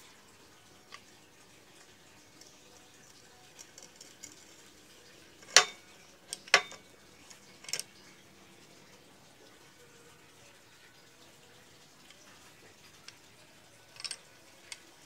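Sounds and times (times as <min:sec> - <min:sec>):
metal bench vise clanking: 0:05.4 - 0:06.8.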